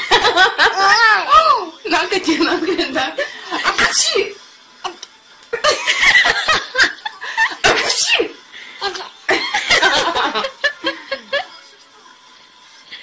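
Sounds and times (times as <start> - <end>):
people laughing: 0.0 - 1.0, 5.6 - 7.9, 9.3 - 11.7.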